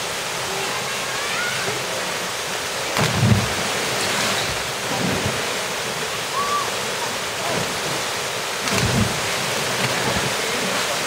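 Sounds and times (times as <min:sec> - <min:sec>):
waterfall rushing: 0:00.0 - 0:11.0
low thump: 0:03.0 - 0:03.6, 0:08.6 - 0:10.2.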